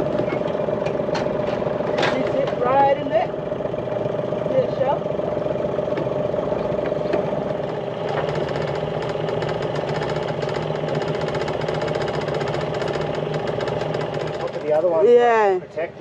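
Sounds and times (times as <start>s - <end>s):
outboard motor running: 0.0s - 16.0s.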